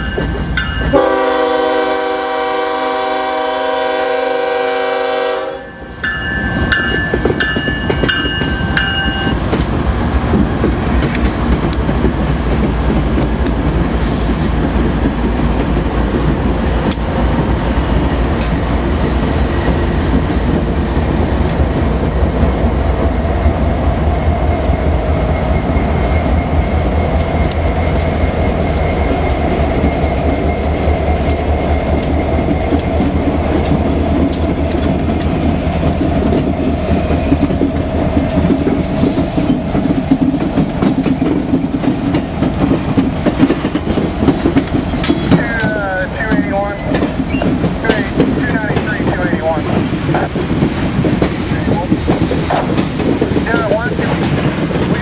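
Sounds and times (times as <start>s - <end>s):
train wheels clattering on rails: 0.0s - 5.2s, 5.9s - 55.0s
locomotive engine rumble: 0.0s - 55.0s
locomotive horn: 0.8s - 5.8s.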